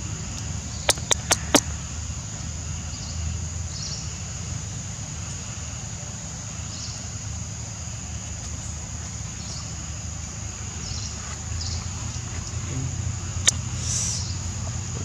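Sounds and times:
steady low rumble: 0:00.0 - 0:15.0
high-pitched insect drone: 0:09.3 - 0:15.0.

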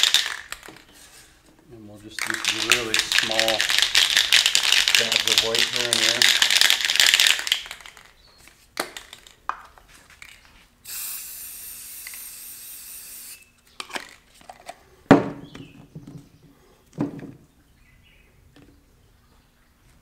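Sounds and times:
spray can hissing: 0:10.8 - 0:13.4.

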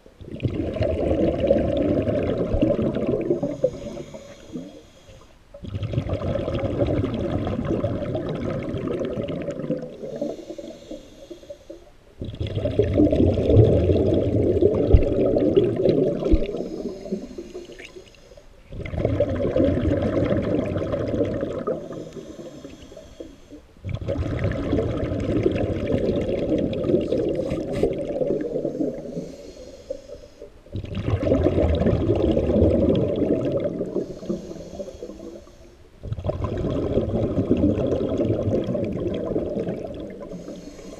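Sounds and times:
exhaled bubbles rushing underwater: 0:00.0 - 0:04.8, 0:05.5 - 0:18.0, 0:18.6 - 0:40.8
regulator inhalation hiss: 0:03.4 - 0:05.4, 0:10.0 - 0:12.0, 0:16.3 - 0:18.7, 0:21.7 - 0:23.7, 0:27.4 - 0:30.6, 0:33.9 - 0:35.9, 0:40.3 - 0:40.9.

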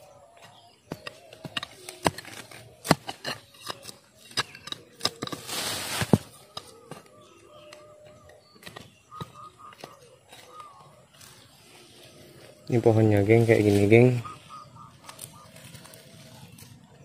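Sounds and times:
dry twigs crackling and snapping: 0:03.6 - 0:08.0, 0:09.8 - 0:16.9
leaves rustling: 0:05.2 - 0:06.5, 0:11.1 - 0:16.9.

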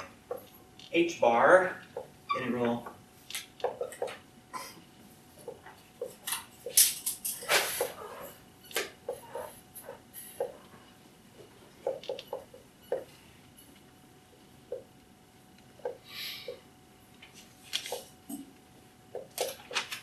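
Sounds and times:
marker squeaking on whiteboard: 0:07.4 - 0:10.7.

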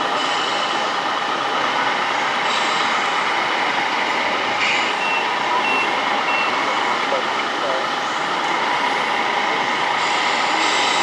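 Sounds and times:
steady background din: 0:00.0 - 0:11.0
electronic reversing beeps: 0:04.9 - 0:06.6.

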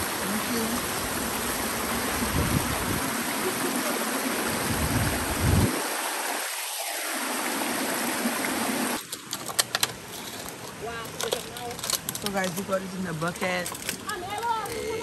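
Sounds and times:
stream rushing over stones: 0:00.0 - 0:15.0.

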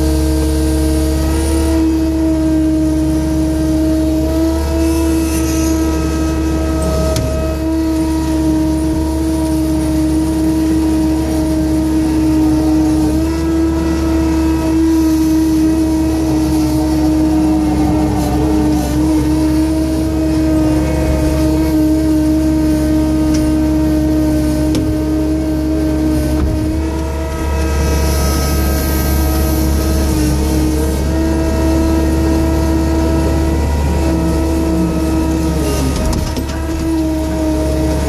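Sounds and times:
tractor engine running: 0:00.0 - 0:38.0.

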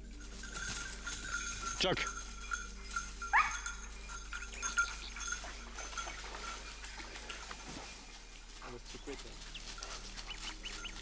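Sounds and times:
dog collar bell tinkling: 0:00.0 - 0:08.7, 0:09.4 - 0:11.0.

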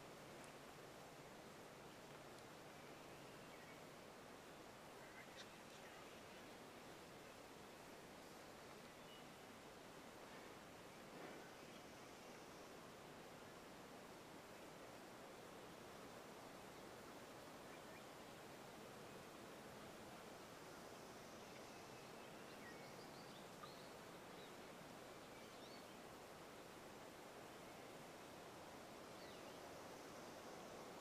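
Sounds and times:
faint steady hiss: 0:00.0 - 0:31.0
distant songbirds chirping: 0:01.4 - 0:09.6, 0:16.6 - 0:18.5, 0:20.6 - 0:28.2, 0:29.1 - 0:30.1
small tick: 0:02.1 - 0:02.5.

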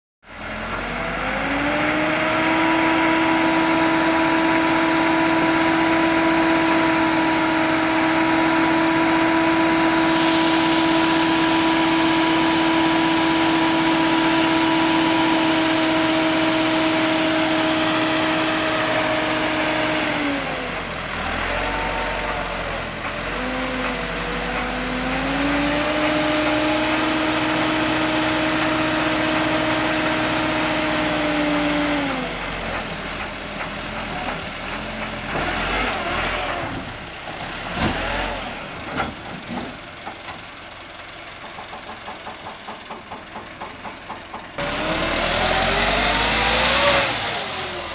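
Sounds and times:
tractor diesel engine running: 0:00.2 - 0:47.9.

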